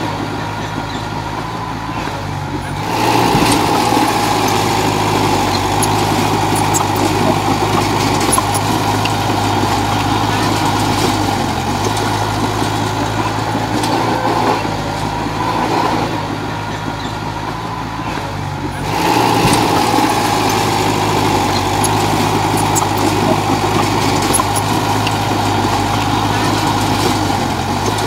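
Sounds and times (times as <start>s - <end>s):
bulldozer diesel engine running: 0.0s - 28.0s.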